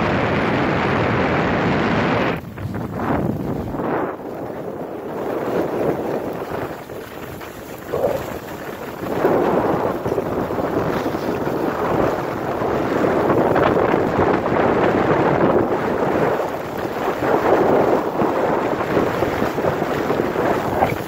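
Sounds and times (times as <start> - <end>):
wind rushing over microphone: 0.0 - 21.0
skis sliding on snow: 2.2 - 21.0.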